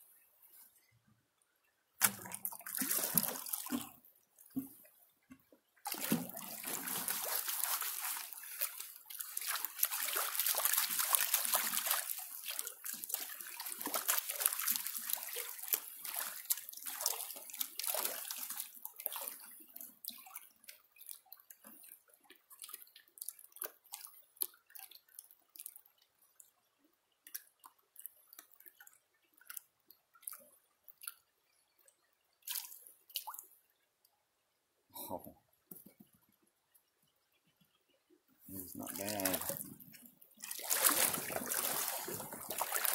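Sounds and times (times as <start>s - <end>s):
water splashing in a pan: 2.0s - 4.0s, 5.9s - 20.3s, 38.6s - 42.9s
water dripping: 2.0s - 33.8s, 35.7s - 42.9s.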